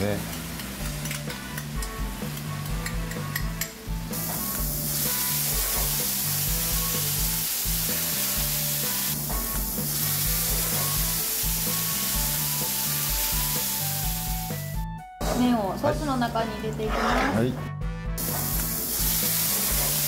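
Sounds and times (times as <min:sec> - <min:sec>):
sauce sizzling in a frying pan: 0:00.0 - 0:14.8, 0:18.2 - 0:20.0.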